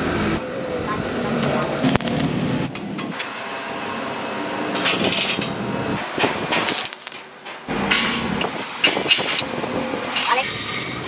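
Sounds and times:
metallic clanks with ringing: 10.1 - 11.0.

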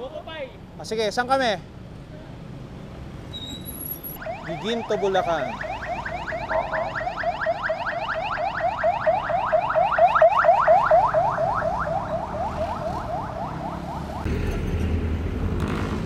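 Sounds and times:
road traffic rumble: 0.0 - 16.0
electronic alarm chirping: 3.4 - 14.2.

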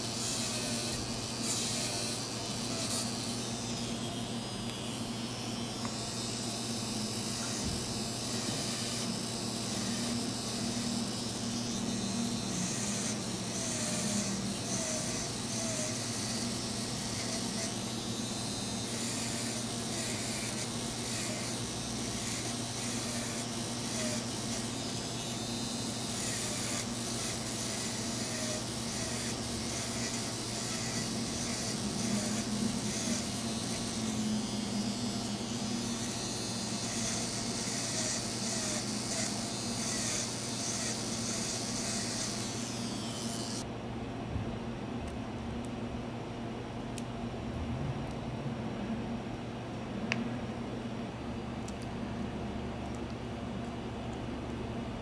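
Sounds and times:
electric nail drill grinding: 0.0 - 43.7.

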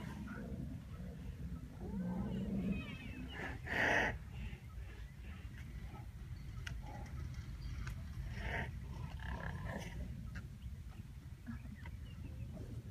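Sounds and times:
rhinoceros vocal sounds: 0.0 - 7.4, 8.2 - 10.5.

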